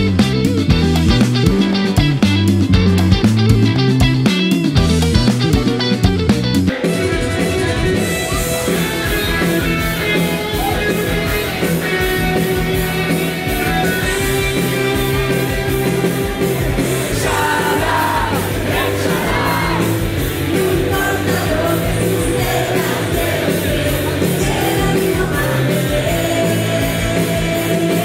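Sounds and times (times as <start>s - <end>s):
electric guitar rock music: 0.0s - 28.0s
steady drum beat: 0.0s - 28.0s
woman singing: 17.1s - 28.0s.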